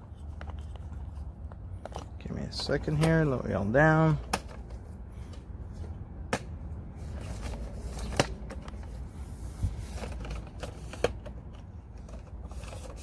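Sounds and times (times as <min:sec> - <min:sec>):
camera handling clicks and knocks: 0:04.2 - 0:05.4.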